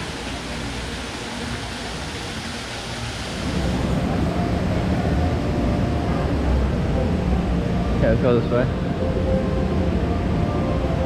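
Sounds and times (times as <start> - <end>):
waterfall pouring into pool: 0.0 - 7.0.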